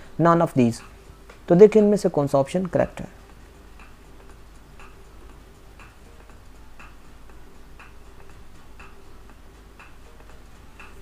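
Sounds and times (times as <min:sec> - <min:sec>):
clock ticking: 0:02.6 - 0:11.0.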